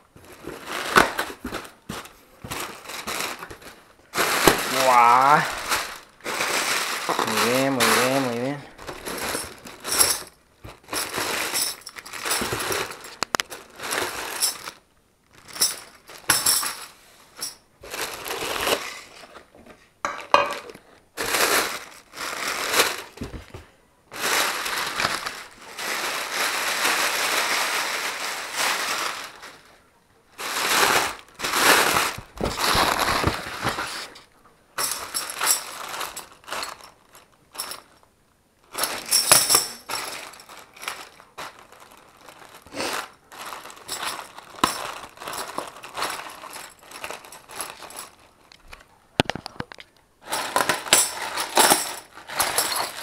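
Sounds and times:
plastic bags rustling and crinkling: 0.0 - 53.0.

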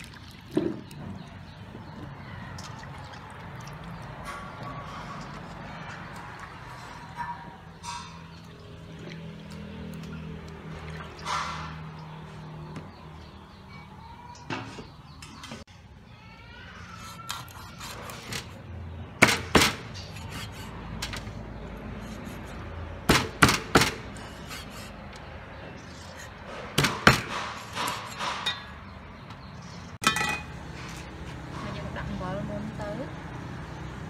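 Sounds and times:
hands splashing in water: 0.0 - 1.4
meat cleaver chopping on wood: 23.1 - 24.7, 26.6 - 28.4.

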